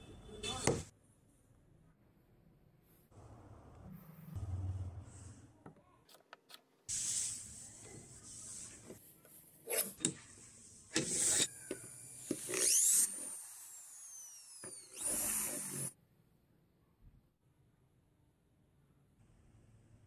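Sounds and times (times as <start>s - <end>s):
vise clicking and scraping: 9.7s - 13.4s
drill bit whining against steel: 10.9s - 15.9s.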